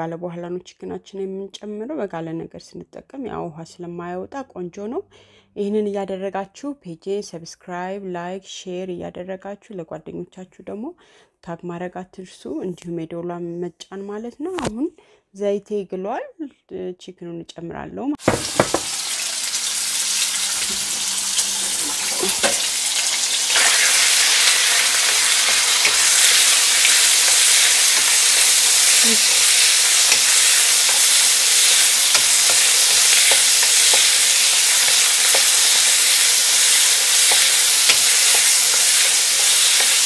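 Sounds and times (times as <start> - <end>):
spatula tapping and scraping pan: 18.2 - 18.9, 22.2 - 22.8, 24.3 - 40.0
chicken sizzling in oil: 18.2 - 40.0.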